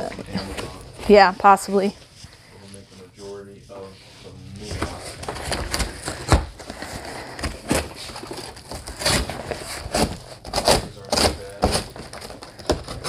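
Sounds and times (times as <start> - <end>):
boxes knocking and clattering: 4.6 - 13.0.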